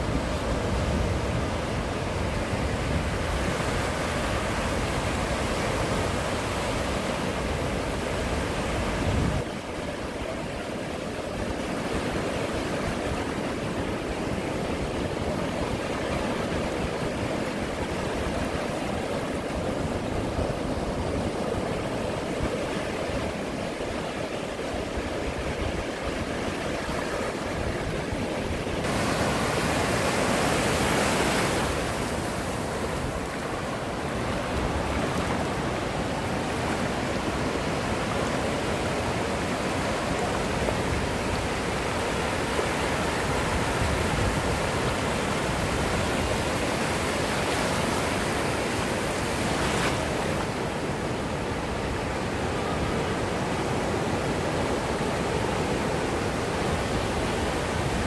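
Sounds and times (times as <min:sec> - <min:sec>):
ocean surf washing onto beach: 0:00.0 - 0:58.0
wave breaking: 0:14.6 - 0:53.8.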